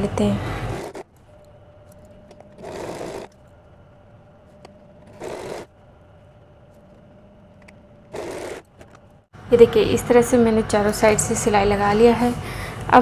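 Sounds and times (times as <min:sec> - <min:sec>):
faint steady hum: 0:00.0 - 0:13.0
sewing machine stitching: 0:00.6 - 0:01.2, 0:02.3 - 0:03.3, 0:05.0 - 0:05.7, 0:08.0 - 0:09.0.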